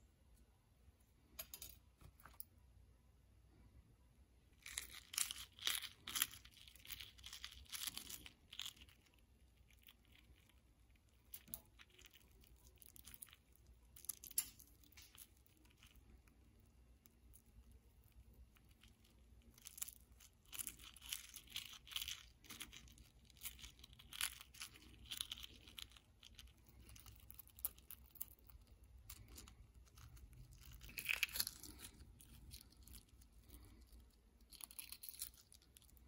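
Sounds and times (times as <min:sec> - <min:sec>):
egg shell crackling as peeled: 0:04.6 - 0:36.0.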